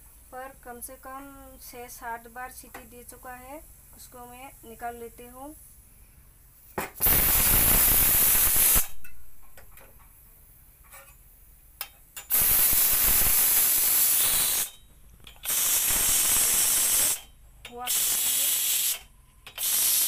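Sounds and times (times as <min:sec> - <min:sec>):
steam hissing from pressure cooker: 0:07.0 - 0:09.0, 0:12.2 - 0:14.8, 0:15.4 - 0:20.0.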